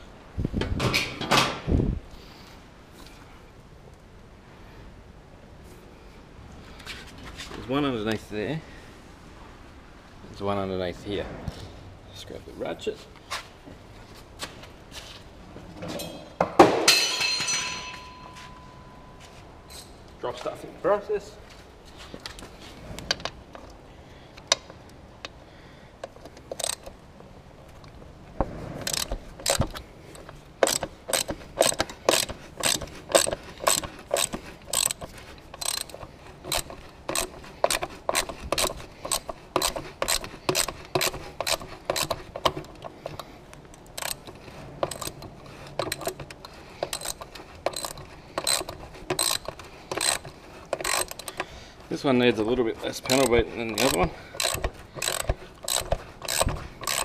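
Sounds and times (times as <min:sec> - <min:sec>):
hand ratchet clicking: 0:26.0 - 0:27.0, 0:28.8 - 0:51.6, 0:52.8 - 0:57.0.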